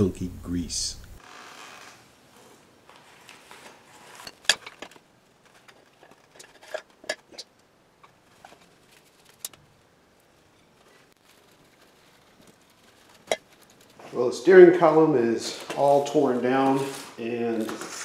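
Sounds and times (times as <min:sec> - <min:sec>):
metal parts clinking and knocking: 0:04.3 - 0:07.5.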